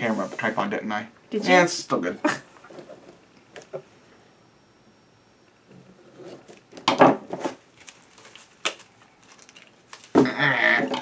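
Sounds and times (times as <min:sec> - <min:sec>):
plastic shrink-wrap crinkling: 0:07.4 - 0:10.2.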